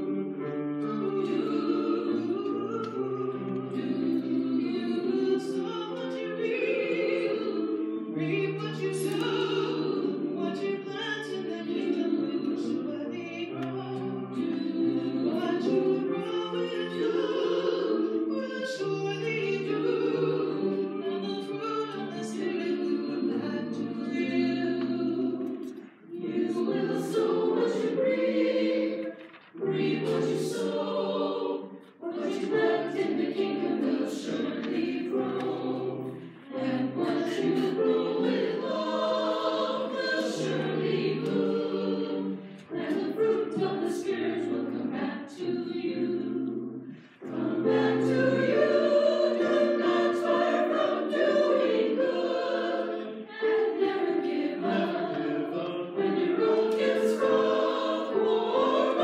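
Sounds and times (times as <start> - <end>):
choir singing in harmony: 0.0 - 59.0.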